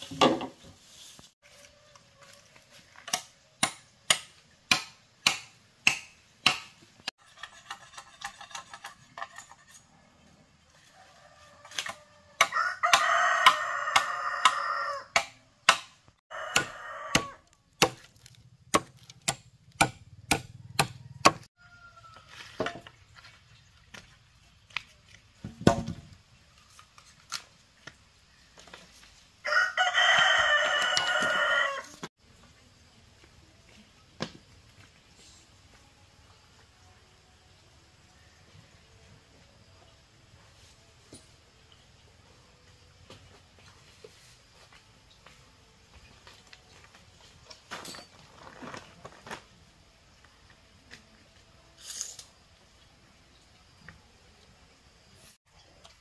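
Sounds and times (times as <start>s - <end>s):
rooster crowing: 10.8s - 15.2s, 16.3s - 17.5s, 20.6s - 22.4s, 29.4s - 32.0s.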